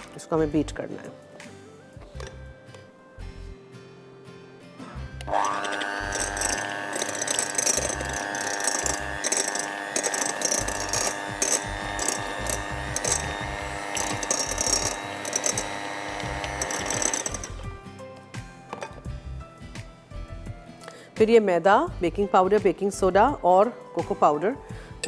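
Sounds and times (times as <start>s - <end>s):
electric hand mixer whine: 5.2s - 17.8s
beaters clattering in glass bowl: 5.5s - 17.6s.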